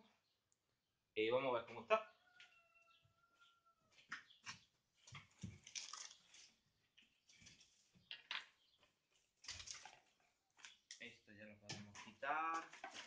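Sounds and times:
plastic and paper packaging rustling: 5.2s - 6.6s, 9.4s - 10.9s, 12.0s - 13.0s.

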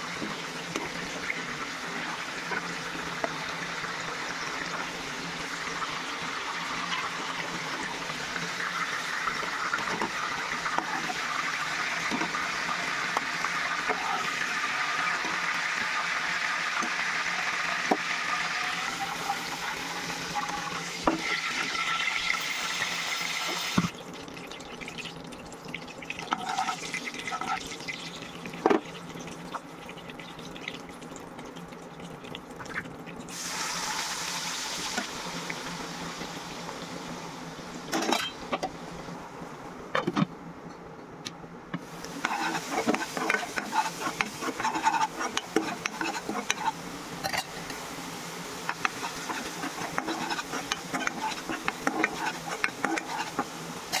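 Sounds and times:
oil sizzling in a frying pan: 0.0s - 39.2s, 41.8s - 54.0s
ladle scraping paste in pan: 42.2s - 47.5s, 48.7s - 54.0s.

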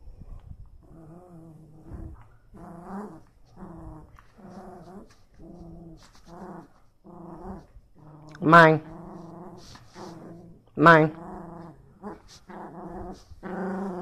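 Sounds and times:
small dog moaning: 0.8s - 14.0s.

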